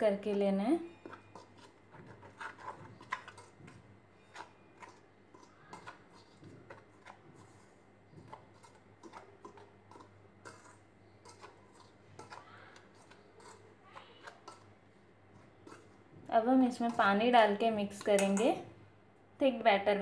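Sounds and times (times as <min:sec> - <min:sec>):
whisk wires ticking on metal bowl: 0:08.2 - 0:18.6.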